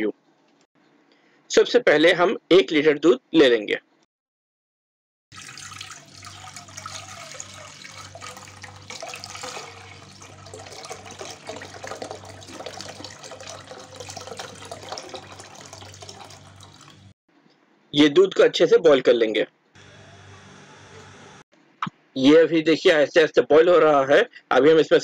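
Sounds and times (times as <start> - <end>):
milk pouring into a pot: 5.3 - 17.1
low steady hum: 5.4 - 17.1.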